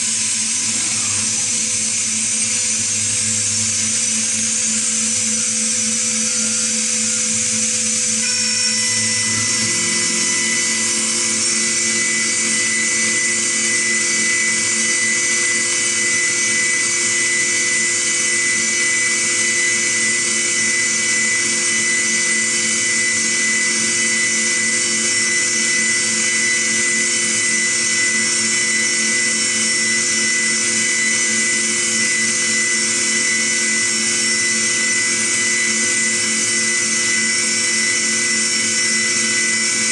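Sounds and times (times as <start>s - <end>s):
milling machine spindle whine: 0.0s - 39.9s
steady machine tone: 0.0s - 39.9s.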